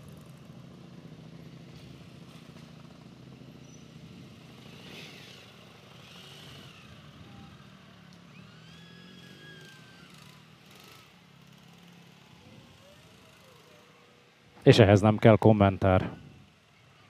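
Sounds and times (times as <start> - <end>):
motorcycle engine idling: 0.0 - 6.0.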